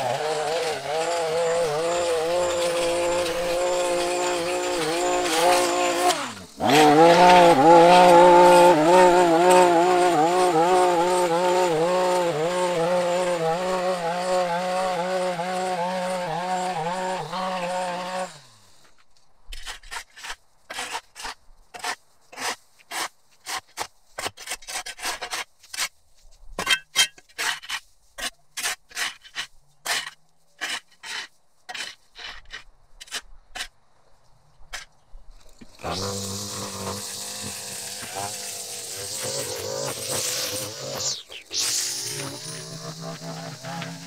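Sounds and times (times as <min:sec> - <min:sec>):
shovel scraping concrete: 0:00.0 - 0:13.0, 0:19.5 - 0:25.9, 0:26.6 - 0:33.7, 0:35.6 - 0:44.0
gas string trimmer running: 0:00.0 - 0:18.6, 0:35.6 - 0:44.0.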